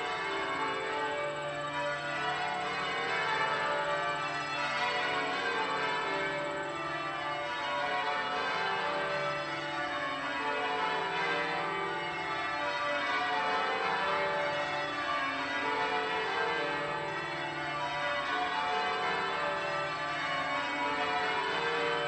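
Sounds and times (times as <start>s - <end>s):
church bells ringing: 0.0s - 22.0s.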